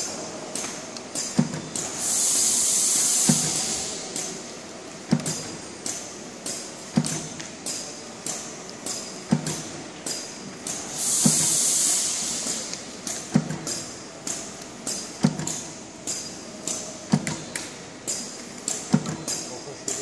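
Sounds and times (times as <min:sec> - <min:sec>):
air hiss: 0:01.8 - 0:04.4, 0:10.7 - 0:14.4
heavy machine thump: 0:03.2 - 0:04.0, 0:06.9 - 0:07.4, 0:11.0 - 0:11.6, 0:15.2 - 0:15.7, 0:18.8 - 0:19.4
machine clicking: 0:12.4 - 0:20.0.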